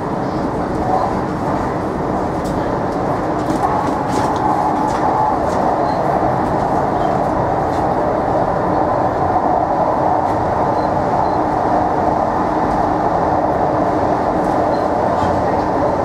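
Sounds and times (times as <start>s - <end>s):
steady train hum: 0.0s - 16.0s
train wheels rumbling on rail: 0.0s - 16.0s.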